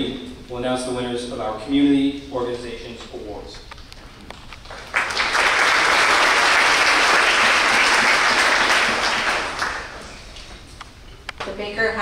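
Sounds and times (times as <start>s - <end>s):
many hands clapping: 4.5s - 10.5s.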